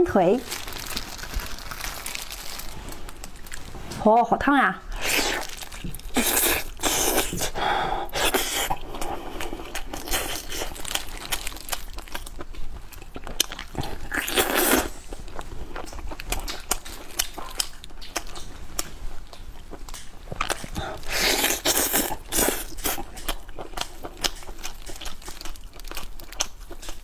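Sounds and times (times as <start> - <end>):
crunching and tearing: 0.4 - 4.0, 5.0 - 27.0
close-miked chewing and biting: 5.0 - 27.0.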